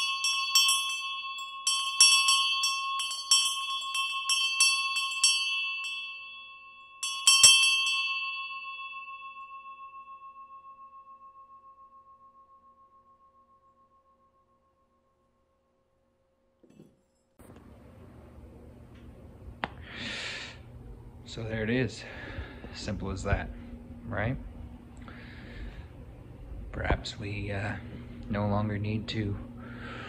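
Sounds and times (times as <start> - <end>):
hand bell ringing: 0.0 - 13.5.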